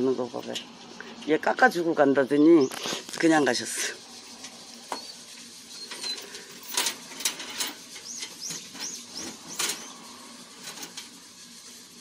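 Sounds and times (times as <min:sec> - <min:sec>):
small bird chirping: 0:02.3 - 0:06.6, 0:07.8 - 0:10.4
sharp clicks and knocks: 0:05.9 - 0:09.9.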